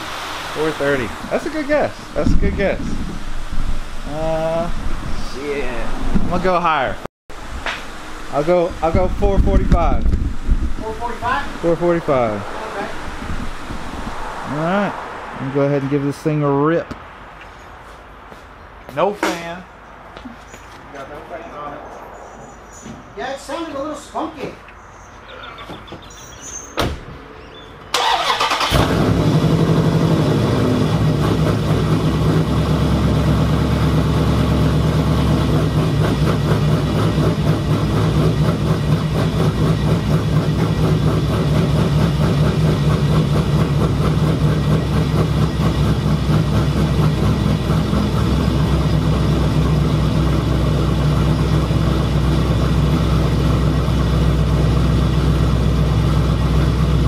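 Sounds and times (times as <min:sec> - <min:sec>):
car engine starting and idling: 0:27.8 - 0:57.0.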